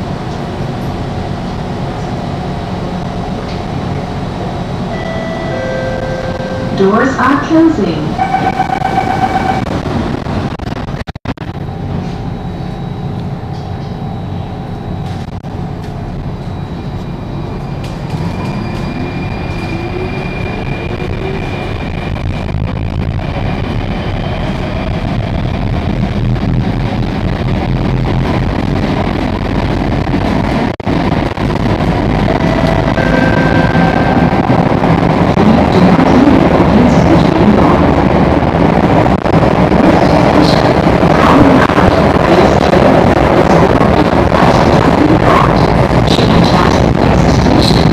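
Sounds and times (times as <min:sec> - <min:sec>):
train running noise: 0:00.0 - 0:47.9
door-closing warning tones: 0:04.9 - 0:07.4, 0:08.1 - 0:09.8, 0:32.2 - 0:34.8.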